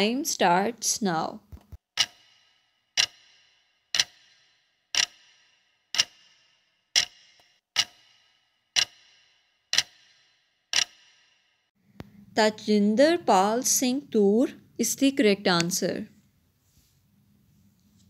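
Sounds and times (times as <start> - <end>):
clock ticks with short ring: 2.0 - 11.5.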